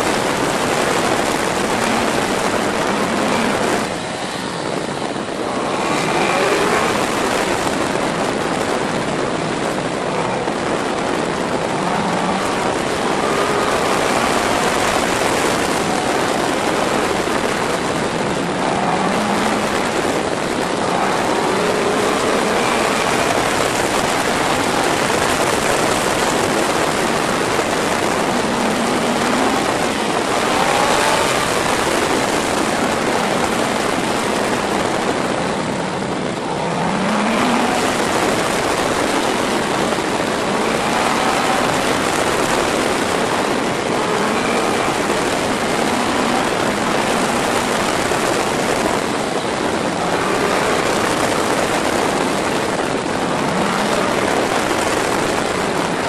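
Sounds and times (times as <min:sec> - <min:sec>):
motorcycle engine accelerating: 0:00.0 - 0:56.0
wind rushing over camera: 0:00.0 - 0:56.0.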